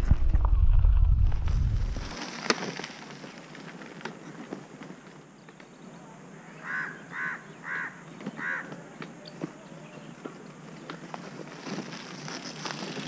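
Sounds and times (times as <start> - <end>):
crow cawing: 6.6 - 8.8.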